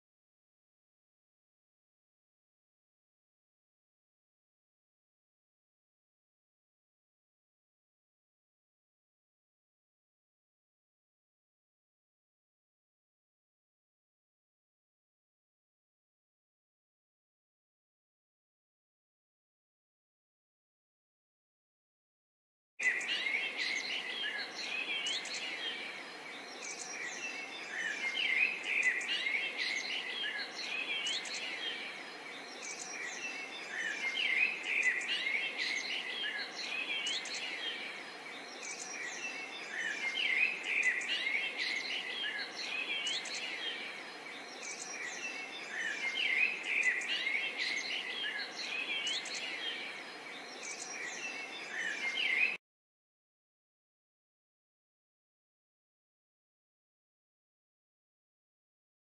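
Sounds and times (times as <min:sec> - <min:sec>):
birds chirping and twittering: 0:22.8 - 0:52.6.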